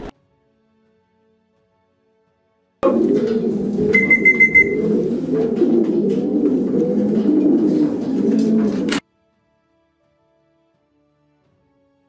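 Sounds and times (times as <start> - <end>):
pigeons cooing: 2.8 - 9.0
short high beeping tone: 4.0 - 4.8.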